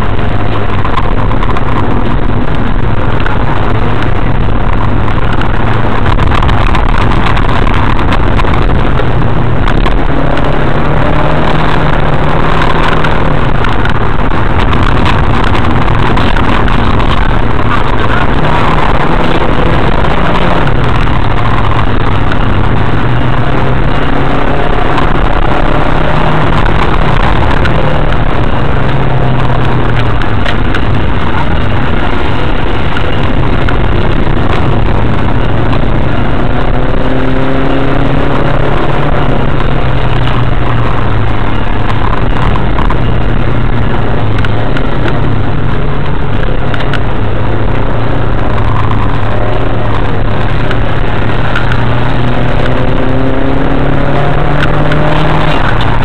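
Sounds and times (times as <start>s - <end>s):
car engine droning: 0.0s - 56.0s
road and tyre noise: 0.0s - 56.0s.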